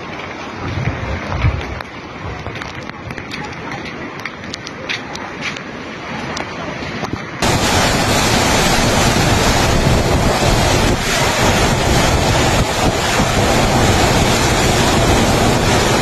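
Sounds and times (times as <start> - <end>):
strong wind buffeting microphone: 0.0 - 4.5, 6.1 - 16.0
heavy driving rain: 6.0 - 16.0.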